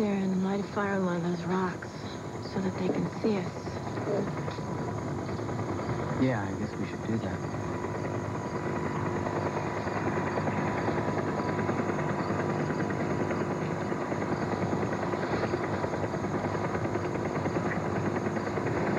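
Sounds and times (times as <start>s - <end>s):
faint steady hum: 0.0s - 18.9s
rushing noise with rapid flutter: 7.4s - 18.9s.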